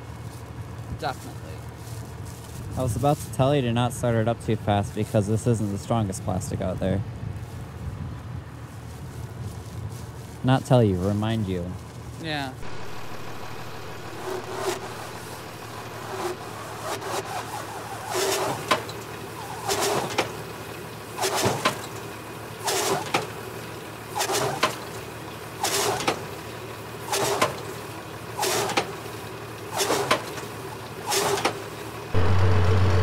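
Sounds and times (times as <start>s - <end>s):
tractor idling: 7.8s - 33.0s.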